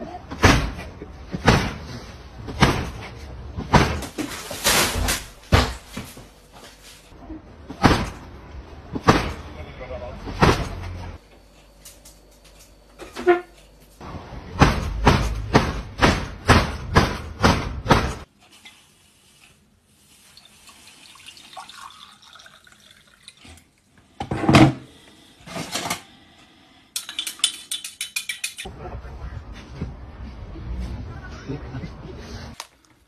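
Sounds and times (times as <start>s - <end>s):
water poured into a mug: 20.3s - 23.8s
teaspoon clinking against mug: 27.0s - 28.7s.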